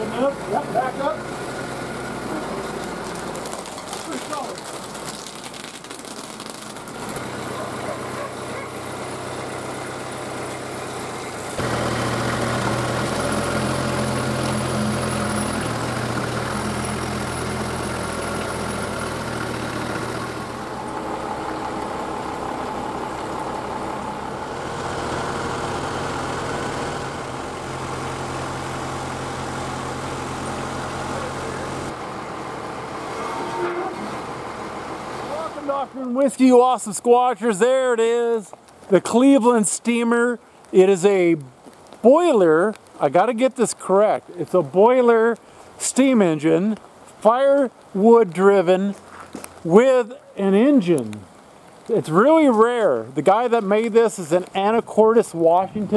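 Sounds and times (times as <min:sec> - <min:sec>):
tractor diesel engine running: 0:00.0 - 0:05.2, 0:06.1 - 0:36.3.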